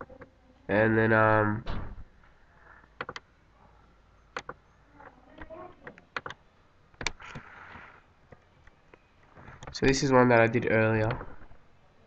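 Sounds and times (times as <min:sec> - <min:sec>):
faint room noise: 0:00.0 - 0:12.0
computer mouse clicking: 0:03.0 - 0:03.3, 0:04.3 - 0:04.6, 0:05.4 - 0:06.4, 0:07.0 - 0:09.0.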